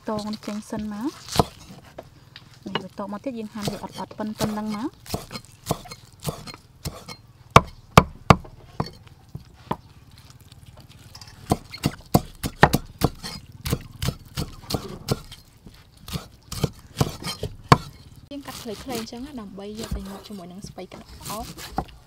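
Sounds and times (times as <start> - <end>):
cleaver chopping on wooden board: 0.1 - 2.1, 3.5 - 9.0, 11.4 - 15.4, 16.0 - 22.0.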